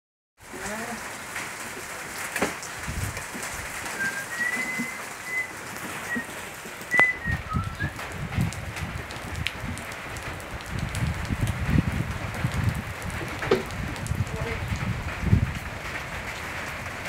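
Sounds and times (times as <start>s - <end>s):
steady rain falling: 0.4s - 17.0s
birds calling: 3.8s - 8.0s.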